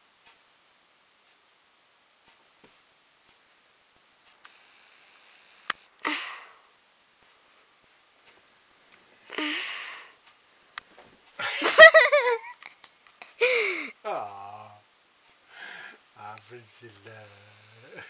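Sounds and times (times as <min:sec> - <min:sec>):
person giggling: 0:11.4 - 0:14.6.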